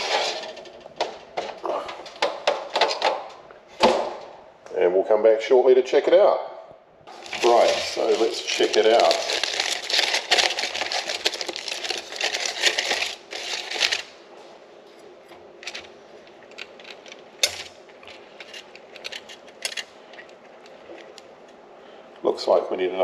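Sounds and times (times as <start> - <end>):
aluminium foil crinkling: 7.1 - 14.2.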